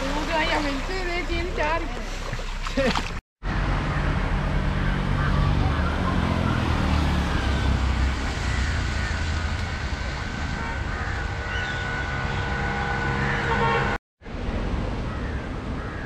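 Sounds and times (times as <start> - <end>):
outdoor noise: 0.0 - 16.0
vehicle engine passing: 3.4 - 14.0.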